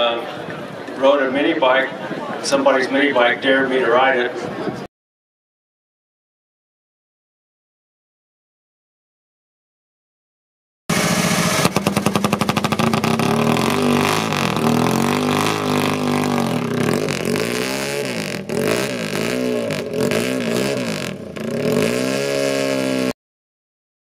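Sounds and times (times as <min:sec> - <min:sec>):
motorcycle engine revving: 0:10.9 - 0:23.2.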